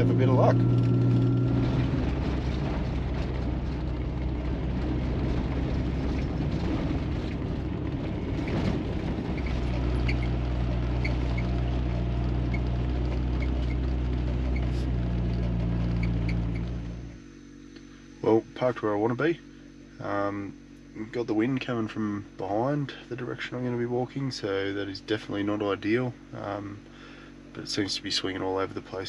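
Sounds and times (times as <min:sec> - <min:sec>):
knocks and rattles: 0:00.0 - 0:17.0
tyre and road noise: 0:00.0 - 0:17.3
vehicle engine drone: 0:00.0 - 0:29.0.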